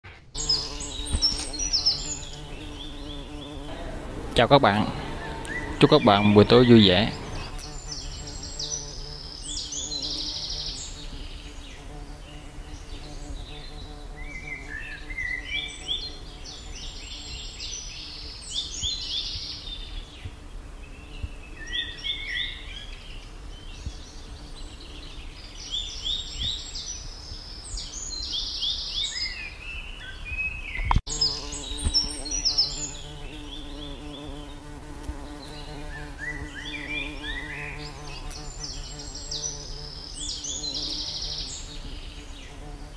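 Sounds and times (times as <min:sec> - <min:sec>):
high chirping calls: 0:00.4 - 0:11.0
steady low hum: 0:02.4 - 0:08.4.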